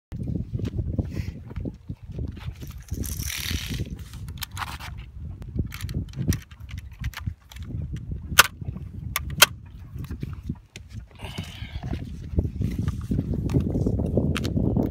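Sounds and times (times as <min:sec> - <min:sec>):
ammunition belt rattling: 0:02.4 - 0:05.0, 0:05.6 - 0:09.5.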